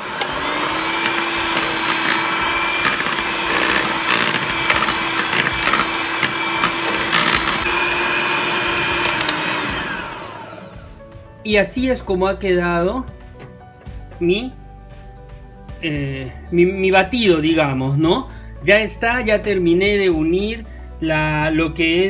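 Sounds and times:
electric hand mixer running: 0.0 - 11.1.

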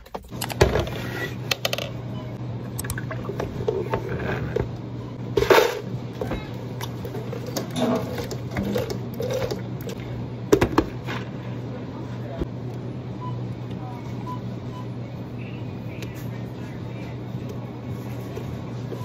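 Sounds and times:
low hum of equipment: 0.0 - 19.0.

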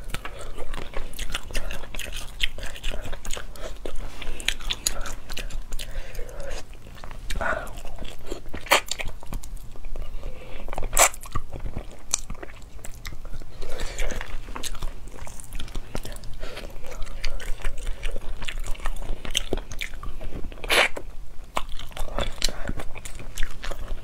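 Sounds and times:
wet chewing and lip smacks: 0.0 - 24.0.

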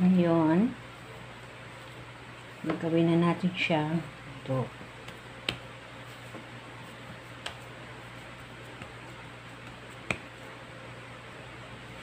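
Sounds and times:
steady low hum: 0.0 - 12.0
hands patting dough on board: 4.8 - 10.6.

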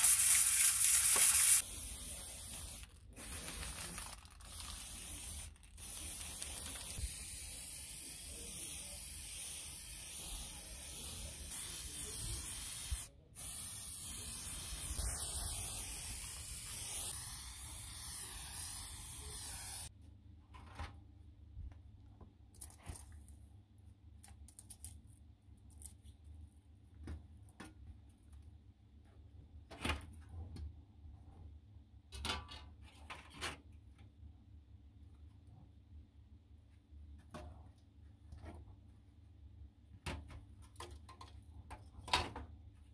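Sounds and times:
aerosol spray hissing: 0.0 - 3.8, 4.5 - 19.9.

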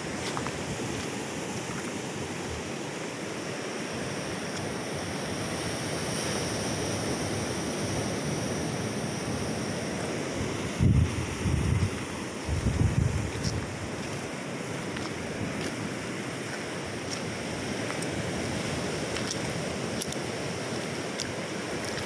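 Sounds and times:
wind on microphone: 4.4 - 22.0.

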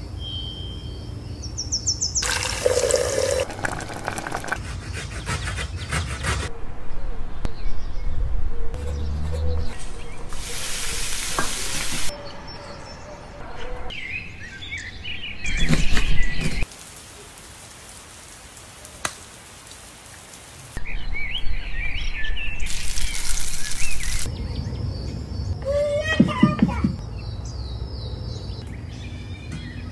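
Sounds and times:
hot oil sizzling: 2.2 - 4.6, 10.3 - 12.1, 22.7 - 24.3
birds chirping: 7.3 - 16.6.

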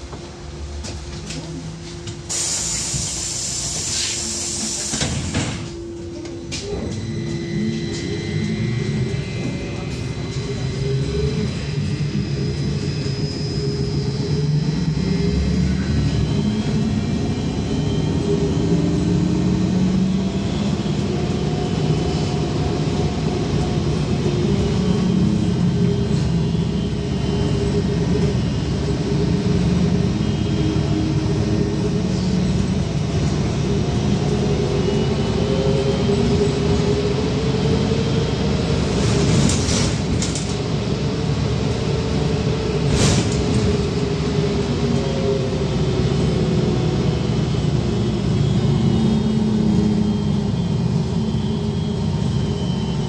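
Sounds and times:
trolleybus rumble: 0.0 - 53.0.

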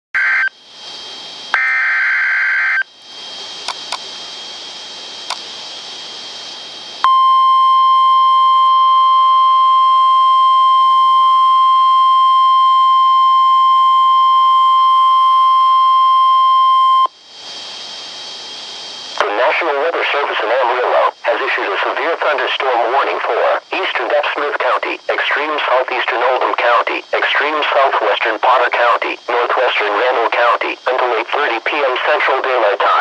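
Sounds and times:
radio hiss with clicks: 3.0 - 4.2, 5.2 - 5.5, 19.1 - 33.0.

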